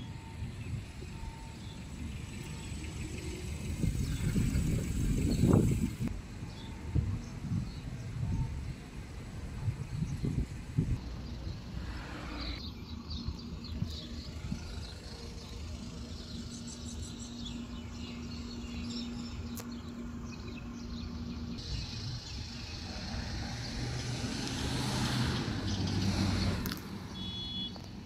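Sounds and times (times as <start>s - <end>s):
low rumble of road traffic: 0.0s - 28.0s.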